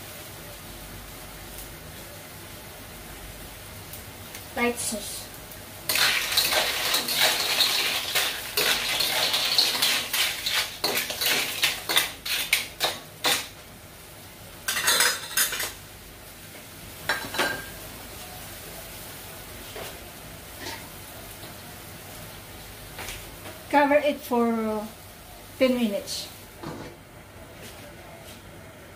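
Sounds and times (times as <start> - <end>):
metal spatula scraping a wok: 5.9 - 13.5.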